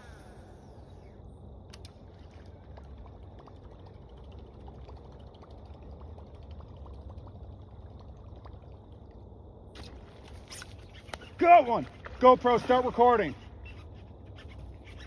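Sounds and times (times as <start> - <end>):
low steady rumble: 0.0 - 10.3
lure splashing and gurgling on water: 0.0 - 15.0
small scattered ticks: 9.8 - 11.5.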